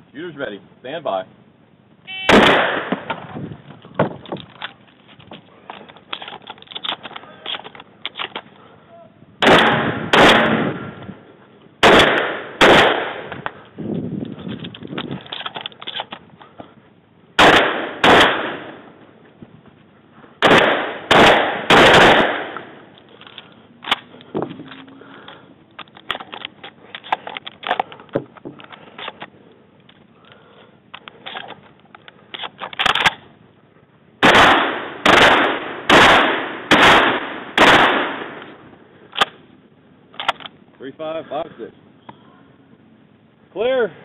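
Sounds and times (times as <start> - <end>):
shotgun shots: 2.2 - 3.3, 9.4 - 11.0, 11.8 - 13.4, 17.4 - 19.0, 20.4 - 22.9, 34.2 - 38.5
shells being loaded clicks: 5.7 - 8.5, 14.5 - 16.2, 22.9 - 30.0, 30.9 - 33.2, 39.1 - 39.4, 40.1 - 40.6.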